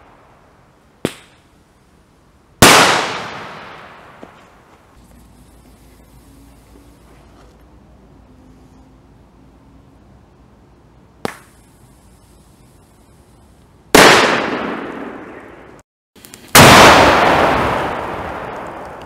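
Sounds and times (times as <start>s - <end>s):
firecracker bang with echo: 2.6s - 4.4s, 14.0s - 15.6s, 16.6s - 18.8s
small sharp pop: 11.2s - 11.6s.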